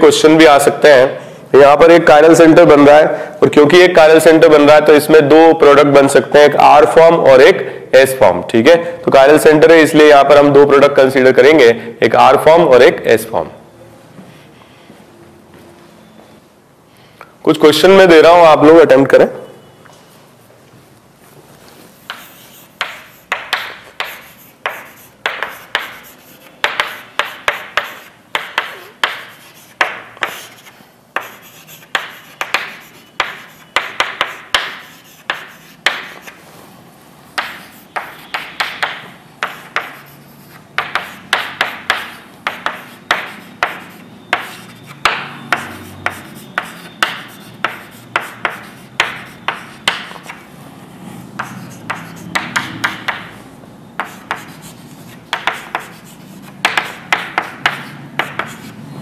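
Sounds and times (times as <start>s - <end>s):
pen scratching on paper: 22.0s - 36.4s, 37.4s - 50.5s, 51.1s - 53.4s, 54.0s - 58.8s.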